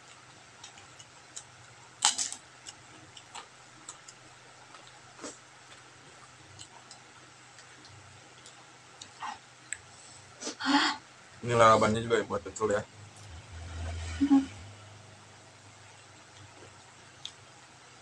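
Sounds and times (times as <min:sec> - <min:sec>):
chewing and lip-smacking: 0:00.0 - 0:09.9, 0:15.9 - 0:17.7.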